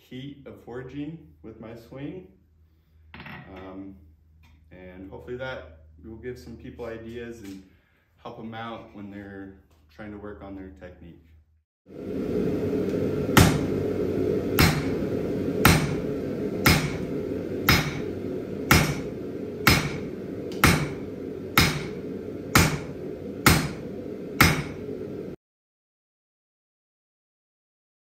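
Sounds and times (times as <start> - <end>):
steady drone: 11.9 - 25.4
hammer striking steel on anvil: 13.4 - 13.7, 14.6 - 24.9.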